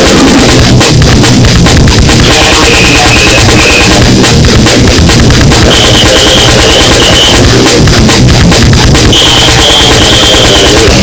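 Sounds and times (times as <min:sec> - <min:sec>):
loud goregrind music: 0:00.0 - 0:11.0.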